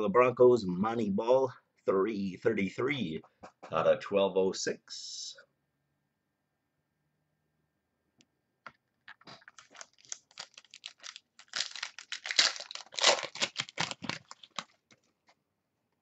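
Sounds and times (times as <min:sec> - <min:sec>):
foil wrapper crinkling: 0:09.1 - 0:15.2.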